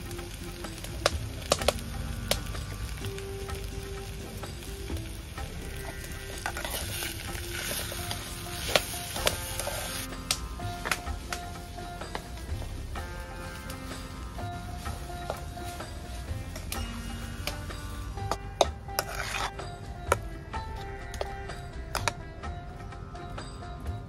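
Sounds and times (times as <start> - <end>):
food sizzling in pan: 0.0 - 22.2
metal spatula scraping pan: 5.4 - 22.2.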